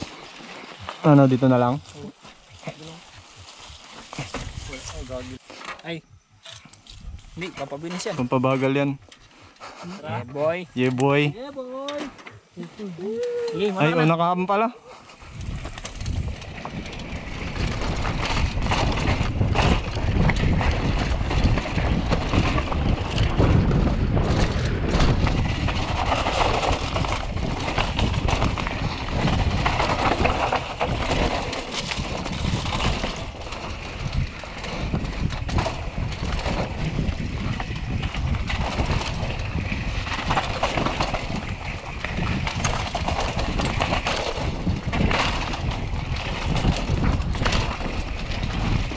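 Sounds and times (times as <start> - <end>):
wind buffeting microphone: 0.0 - 5.4, 15.2 - 48.9
bike tyres on loose dirt: 0.0 - 48.9.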